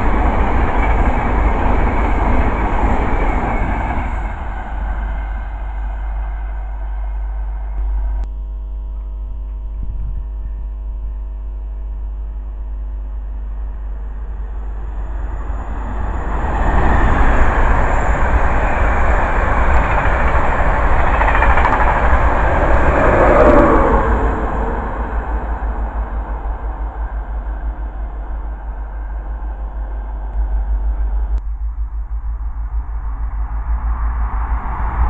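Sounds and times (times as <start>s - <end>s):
rush of train wheels on rail: 0.0s - 8.2s, 14.2s - 31.4s
electric train hum: 0.0s - 35.0s.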